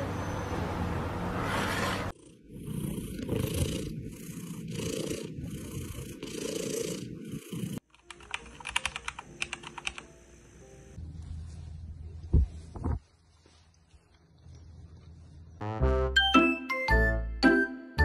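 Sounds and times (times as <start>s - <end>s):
cat purring: 2.1s - 7.8s
computer keyboard typing: 7.8s - 10.1s.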